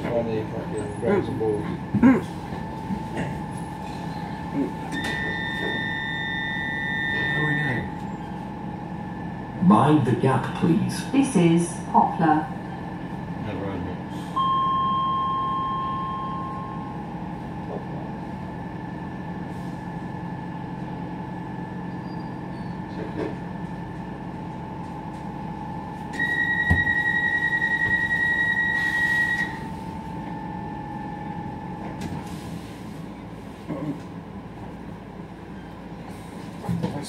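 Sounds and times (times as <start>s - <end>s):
track rumble: 0.0s - 37.0s
train electric motor whine: 2.5s - 10.0s, 22.6s - 32.4s
loud high squeal: 4.9s - 8.3s.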